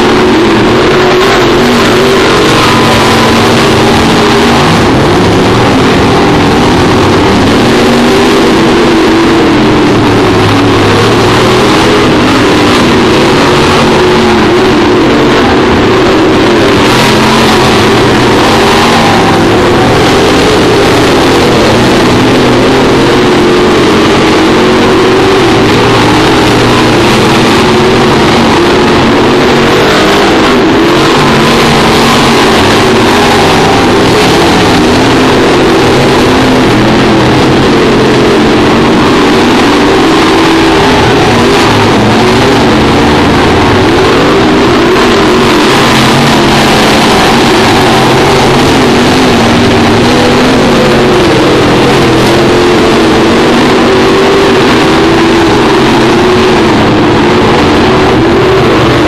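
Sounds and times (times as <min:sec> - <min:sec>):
race car engines roaring: 0:00.0 - 0:59.0.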